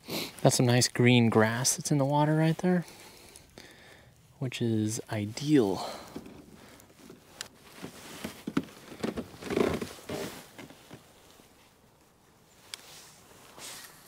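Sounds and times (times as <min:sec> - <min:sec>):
gear knocking in plastic kayak: 0:07.8 - 0:10.7
swishing rustle: 0:09.8 - 0:14.0.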